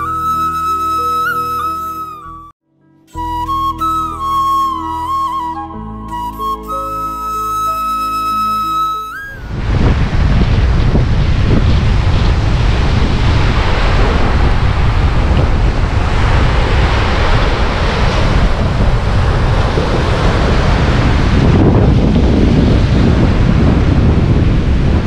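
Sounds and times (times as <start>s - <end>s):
wind rumbling on microphone: 0.0s - 2.5s, 3.2s - 25.0s
surf breaking on shore: 9.4s - 25.0s.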